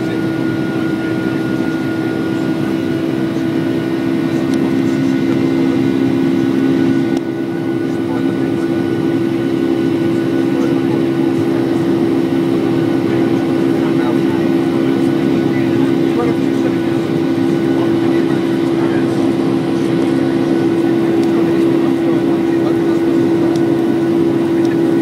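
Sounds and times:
jet engine cabin drone: 0.0 - 25.0.

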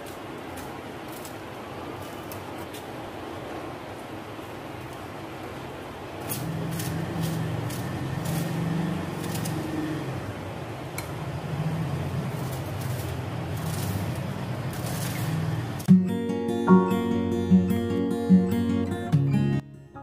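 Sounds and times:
knife cutting vegetables: 0.0 - 2.9, 6.2 - 9.8, 12.2 - 15.9.

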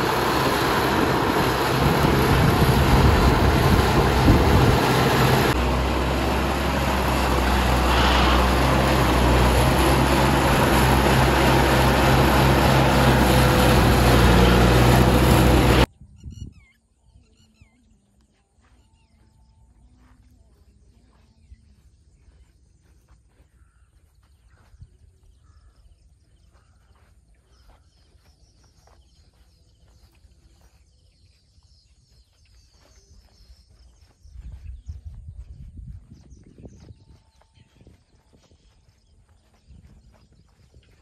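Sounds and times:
machinery engine droning: 0.0 - 15.9
faint bird chirps: 15.9 - 35.6.

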